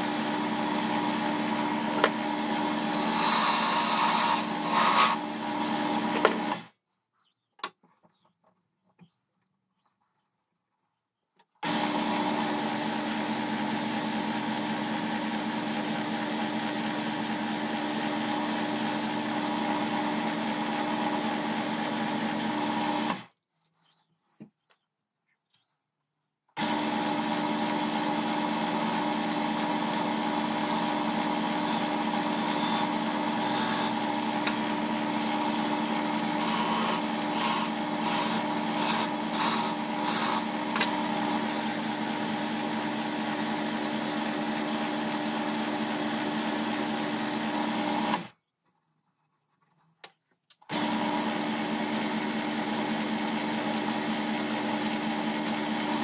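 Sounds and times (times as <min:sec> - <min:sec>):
wood lathe humming: 0:00.0 - 0:06.6, 0:11.6 - 0:23.2, 0:26.6 - 0:48.3, 0:50.7 - 0:56.0
turning tool scraping wood: 0:02.8 - 0:06.6, 0:18.3 - 0:22.4, 0:28.1 - 0:40.9.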